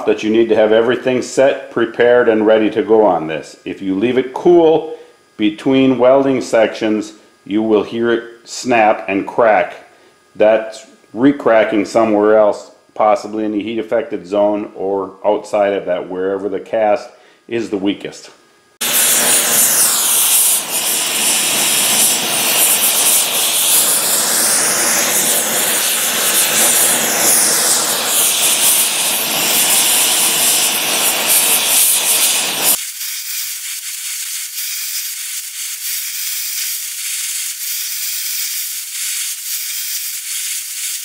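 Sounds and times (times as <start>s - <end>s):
torch flame hissing: 18.8s - 41.0s.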